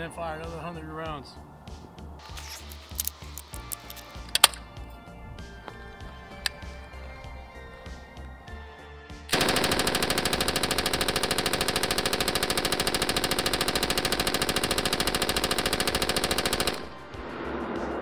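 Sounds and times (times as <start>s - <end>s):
machine gun full-auto burst: 9.3s - 17.1s.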